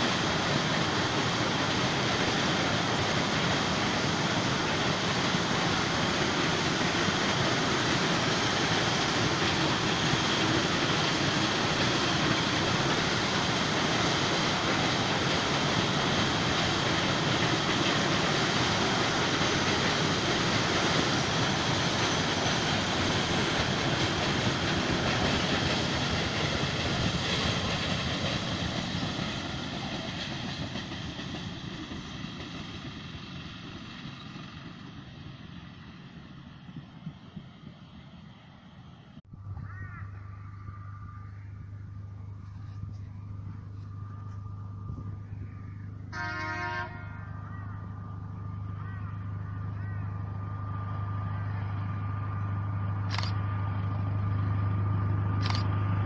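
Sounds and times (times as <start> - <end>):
train wagons rolling on rails: 0.0 - 39.2.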